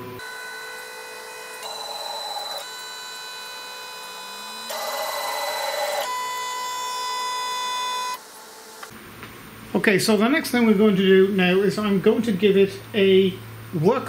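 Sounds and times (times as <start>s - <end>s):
stepper motors whining: 0.0s - 8.9s.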